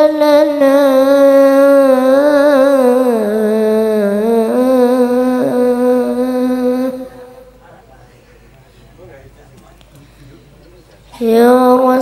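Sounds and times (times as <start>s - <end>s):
boy singing: 0.0s - 7.5s, 11.2s - 12.0s.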